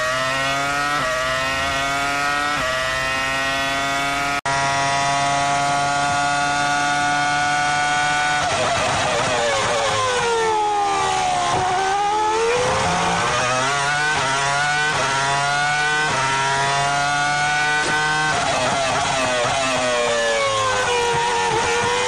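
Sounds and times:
racing car engine revving: 0:00.0 - 0:22.0.

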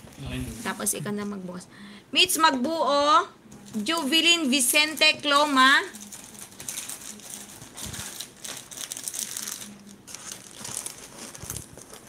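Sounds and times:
crinkling and rustling: 0:03.5 - 0:12.0.

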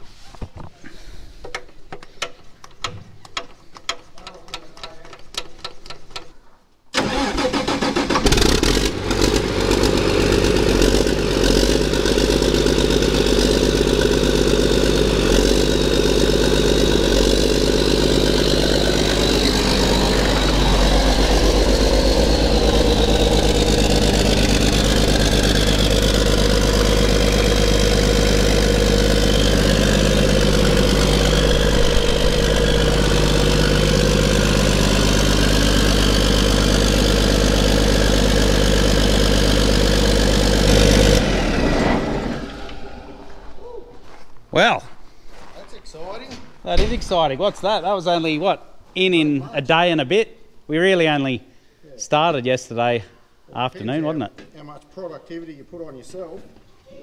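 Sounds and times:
diesel tractor engine running: 0:07.0 - 0:43.5
high whine: 0:16.8 - 0:38.4.

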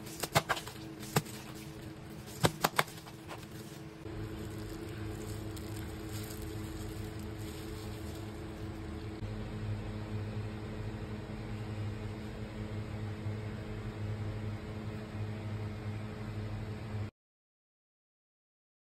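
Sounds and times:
kitchen motor humming: 0:00.0 - 0:09.3.

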